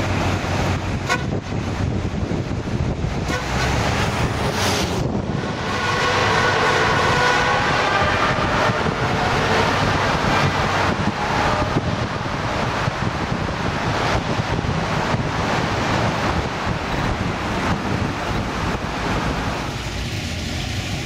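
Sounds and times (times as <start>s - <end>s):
car engine: 0.0s - 21.0s
road noise: 0.0s - 21.0s
wind noise: 0.0s - 21.0s.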